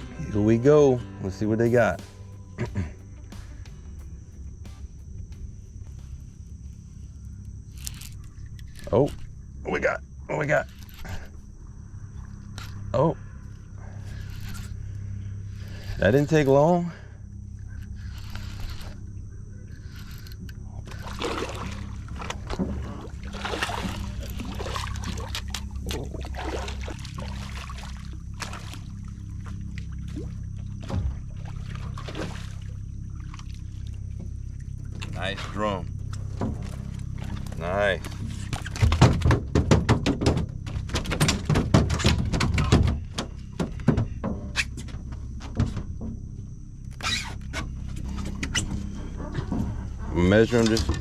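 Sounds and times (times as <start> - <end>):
low steady hum: 0.0 - 51.0
water splashing against boat: 19.8 - 51.0.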